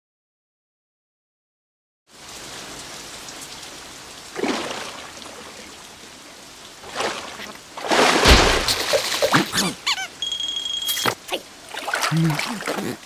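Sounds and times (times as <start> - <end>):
steady rain patter: 2.1 - 13.0
sudden splash: 4.3 - 5.6, 6.8 - 9.7.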